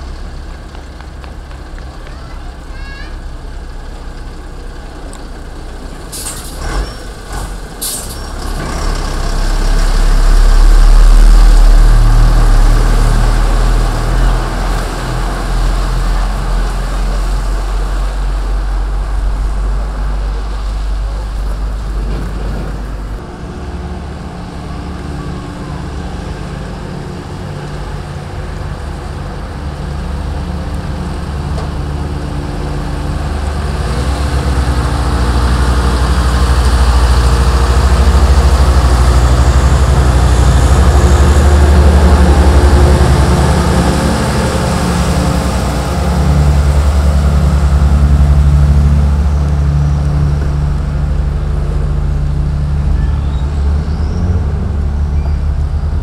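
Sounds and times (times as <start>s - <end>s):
truck diesel engine rumble: 0.0s - 56.0s
truck engine humming: 0.0s - 56.0s
air brake hisses: 7.8s - 8.3s.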